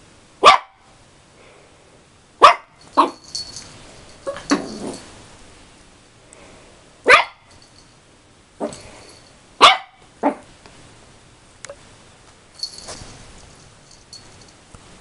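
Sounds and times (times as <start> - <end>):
puppy barking: 0.4 - 0.8, 2.4 - 3.3, 7.0 - 7.5, 9.6 - 10.5.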